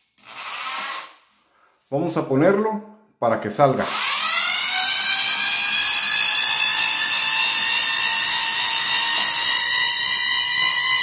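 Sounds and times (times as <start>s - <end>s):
electric drain snake motor whining: 3.9s - 11.0s.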